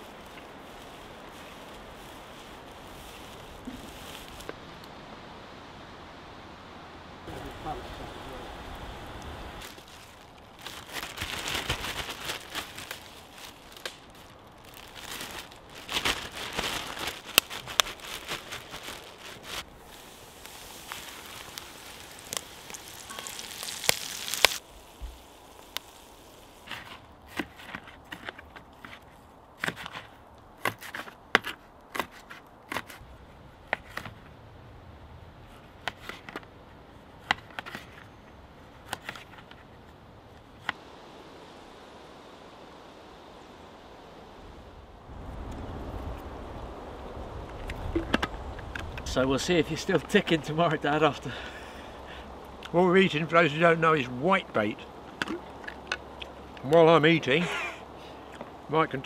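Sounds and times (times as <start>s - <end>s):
plastic bag crinkling: 9.6s - 26.6s.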